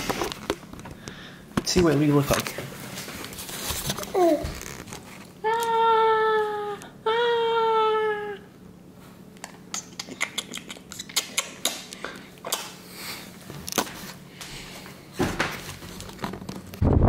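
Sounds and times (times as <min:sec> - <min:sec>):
wind rumble on microphone: 0:16.8 - 0:17.0.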